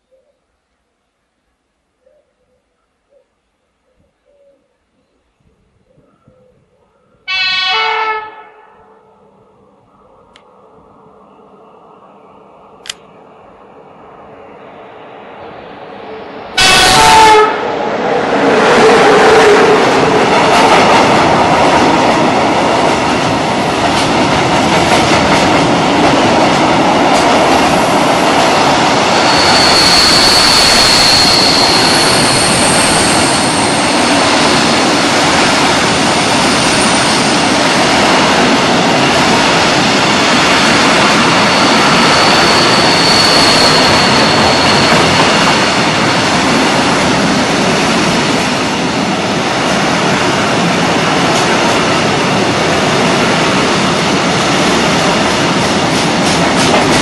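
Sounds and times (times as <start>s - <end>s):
train wheels rolling and wagons rattling: 18.8s - 57.0s
high-pitched wheel squeals: 29.1s - 34.1s, 41.3s - 45.8s.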